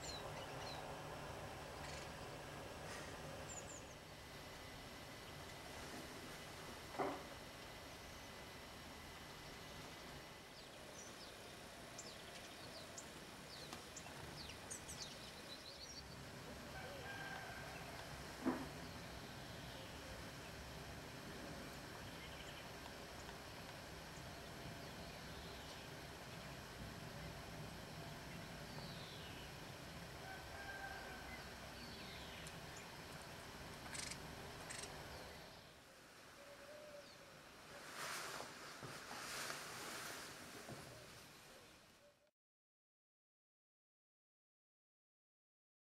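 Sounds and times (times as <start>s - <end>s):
songbirds calling: 0.0s - 5.6s, 7.0s - 35.8s
low background noise: 0.0s - 42.3s.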